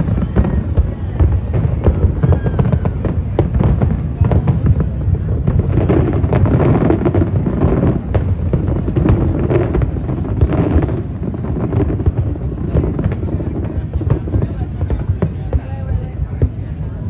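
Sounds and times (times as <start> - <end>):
fireworks bangs: 0.0 - 17.0
low rumble of fireworks: 0.0 - 17.0.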